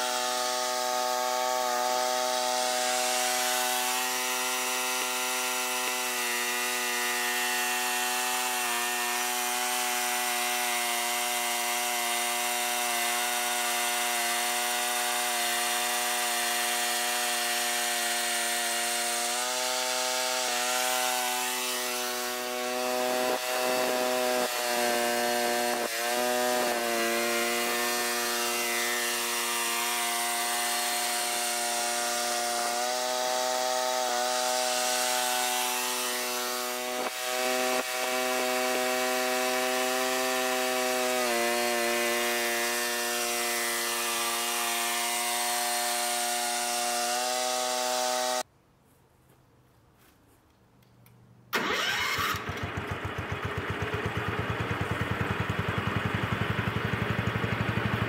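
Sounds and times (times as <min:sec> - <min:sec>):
tractor engine running hard: 0:51.6 - 0:58.0.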